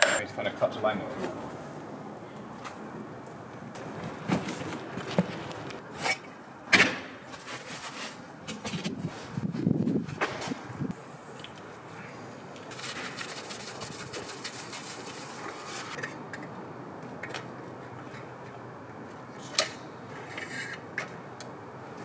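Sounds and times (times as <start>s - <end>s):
metal parts rubbing and scraping: 0.0s - 0.2s
sharp metal clinks: 0.0s - 0.3s.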